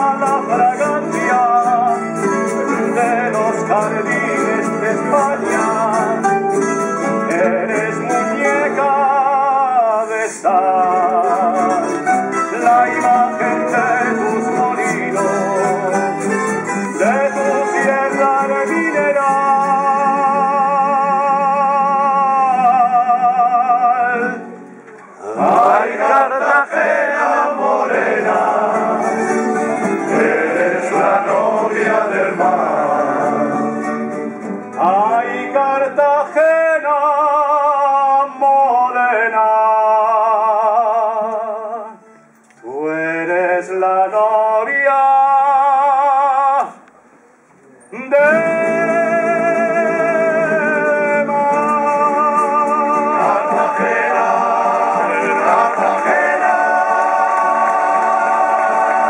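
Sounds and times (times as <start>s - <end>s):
strummed guitars: 0.0s - 40.5s, 48.0s - 59.0s
male chorus singing: 12.5s - 16.1s, 16.9s - 20.8s, 25.2s - 34.0s, 48.2s - 59.0s.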